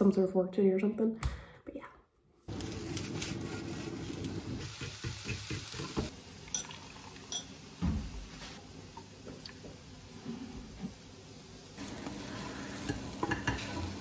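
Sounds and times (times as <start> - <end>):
mushrooms sizzling in a frying pan: 2.5 - 14.0
water pouring into a glass mug: 6.4 - 7.5.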